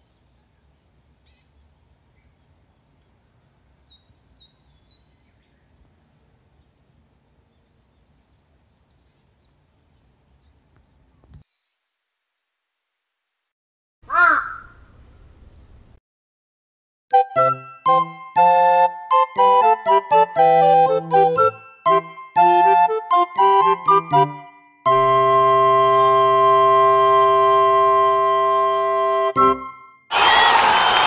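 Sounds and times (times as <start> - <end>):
songbirds chirping: 0.0 - 13.2
crow cawing: 14.1 - 14.8.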